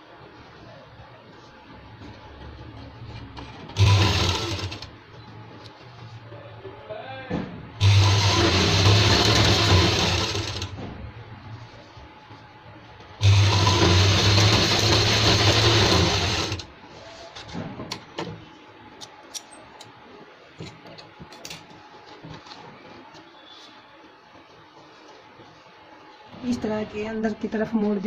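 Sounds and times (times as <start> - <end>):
sewing machine stitching: 3.4 - 4.9, 7.8 - 10.7, 13.2 - 16.7.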